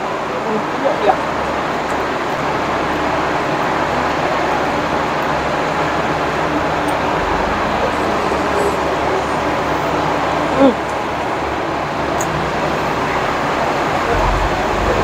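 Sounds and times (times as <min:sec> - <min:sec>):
bus engines running: 0:00.0 - 0:15.0
crowd murmuring: 0:04.2 - 0:15.0
low rumble: 0:06.3 - 0:10.5, 0:13.8 - 0:15.0.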